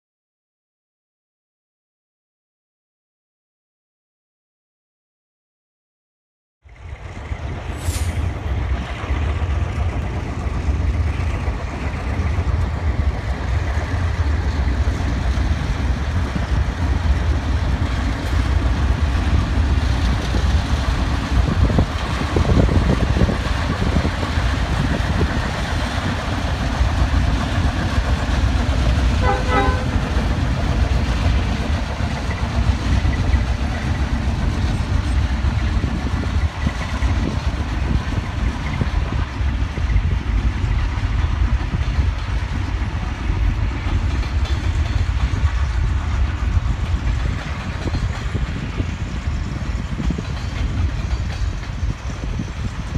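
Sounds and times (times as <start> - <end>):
locomotive engines rumbling: 6.7 - 52.9
train horn toot: 29.2 - 30.1.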